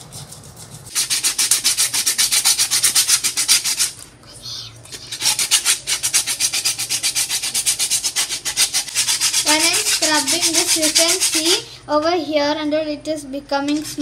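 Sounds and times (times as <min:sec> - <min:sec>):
sandpaper scrubbing coconut shell: 0:00.0 - 0:04.0, 0:05.0 - 0:11.7, 0:13.7 - 0:14.0.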